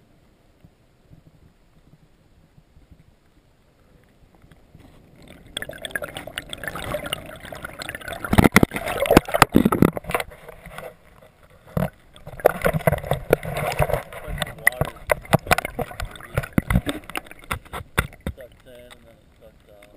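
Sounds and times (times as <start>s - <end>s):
water sloshing and gurgling: 1.0s - 19.9s
splashes and knocks: 4.6s - 19.9s.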